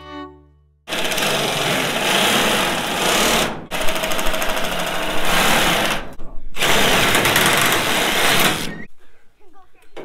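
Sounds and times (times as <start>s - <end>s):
metal shears cutting sheet metal: 0.9s - 8.9s.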